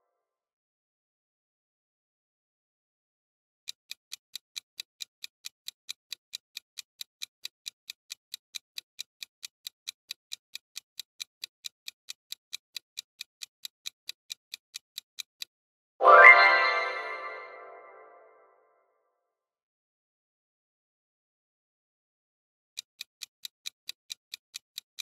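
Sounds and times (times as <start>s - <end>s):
clock-like timer ticking: 3.7s - 15.6s, 22.8s - 25.0s
multi-tone chime: 16.0s - 18.2s.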